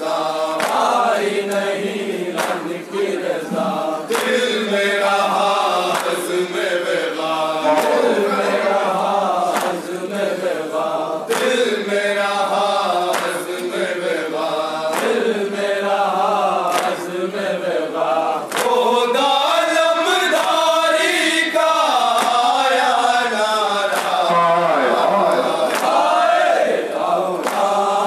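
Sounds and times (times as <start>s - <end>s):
men chanting in unison: 0.0s - 28.0s
chest-beating slaps: 3.5s - 4.4s.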